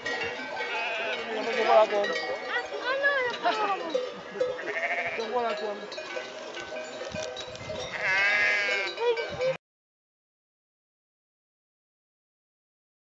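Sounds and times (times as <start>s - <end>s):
sheep bleating: 0.2s - 2.2s, 3.3s - 6.4s, 7.8s - 9.5s.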